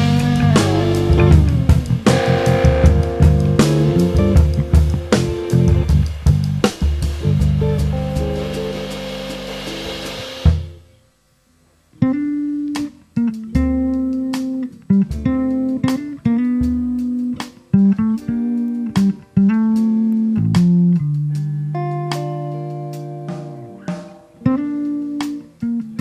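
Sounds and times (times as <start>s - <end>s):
jazz band playing: 0.0s - 10.9s, 12.0s - 26.0s
cymbal wash: 0.0s - 11.0s
guitars and bass playing notes: 0.0s - 11.1s, 11.9s - 26.0s.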